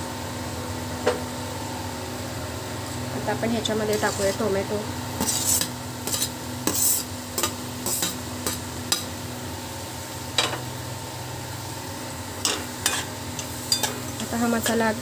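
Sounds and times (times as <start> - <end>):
light sizzle: 2.7 - 15.0
spatula scraping metal pan: 3.9 - 4.4, 5.2 - 8.6.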